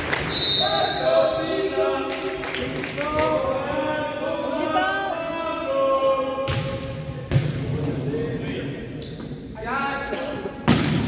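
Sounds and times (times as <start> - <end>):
voices chanting together: 0.6 - 8.9.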